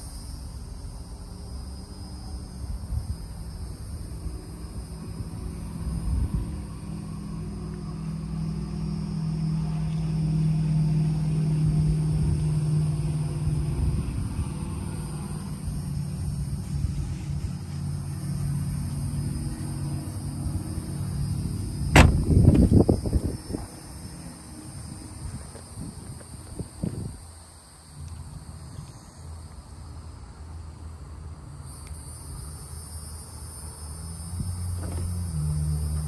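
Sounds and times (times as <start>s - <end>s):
car engine idling: 15.1s - 23.2s.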